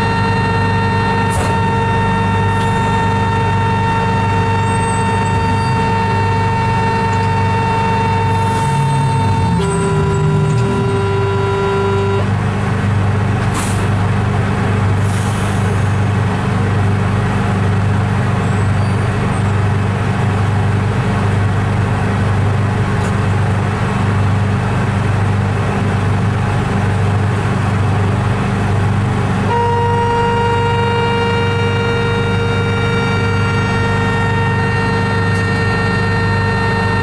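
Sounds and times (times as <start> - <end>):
train rumbling: 0.0 - 37.0
short air hisses: 13.6 - 13.9.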